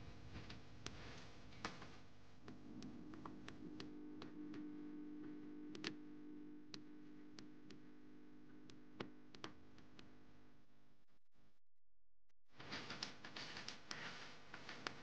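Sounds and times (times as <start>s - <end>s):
low hum: 2.4s - 12.5s.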